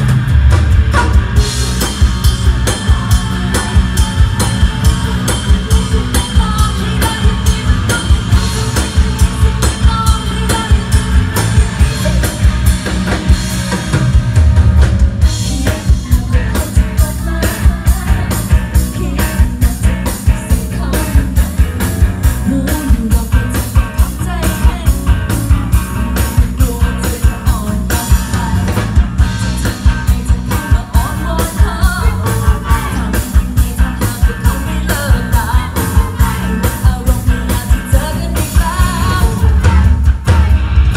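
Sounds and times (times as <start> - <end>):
live band playing: 0.0 - 40.9
woman singing into microphone: 5.8 - 8.7, 9.3 - 12.2, 15.3 - 21.6, 22.4 - 25.2, 26.4 - 28.9, 30.1 - 40.2.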